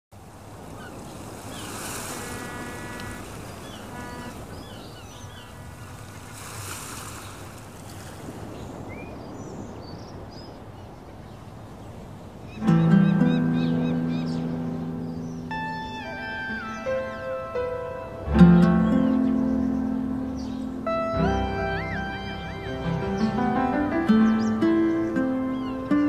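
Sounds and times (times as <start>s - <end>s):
ocean surf washing in: 0.1s - 26.0s
birds chirping: 0.4s - 26.0s
music with deep sustained chord: 12.6s - 26.0s.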